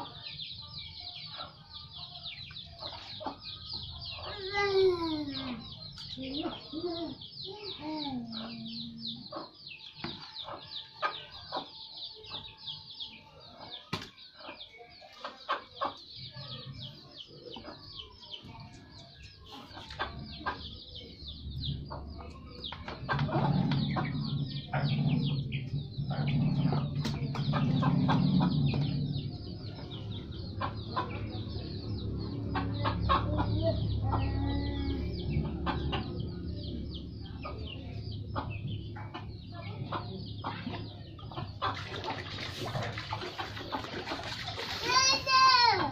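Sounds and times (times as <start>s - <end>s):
chickens clucking: 0.0s - 45.9s
low rumble: 21.2s - 41.5s
water splashing in plastic basin: 41.6s - 45.4s.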